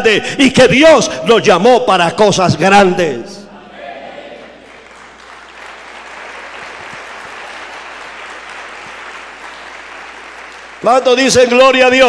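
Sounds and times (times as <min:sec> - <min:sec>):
congregation applauding: 0:04.4 - 0:12.0.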